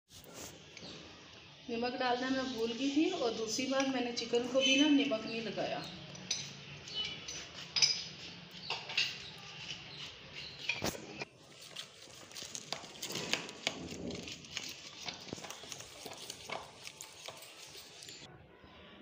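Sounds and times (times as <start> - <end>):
spoon scraping a steel bowl: 5.9 - 11.3, 12.4 - 18.3.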